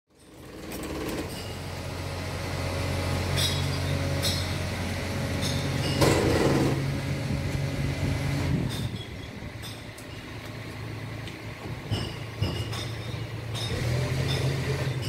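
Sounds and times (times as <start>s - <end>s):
vending machine humming: 0.4s - 14.8s.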